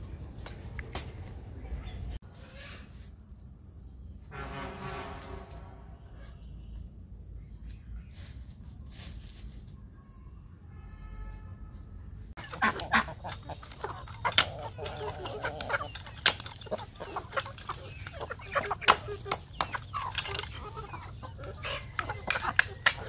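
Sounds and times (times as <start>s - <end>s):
chickens and ducks calling: 1.8s - 3.1s, 12.4s - 23.0s
geese honking: 12.4s - 23.0s.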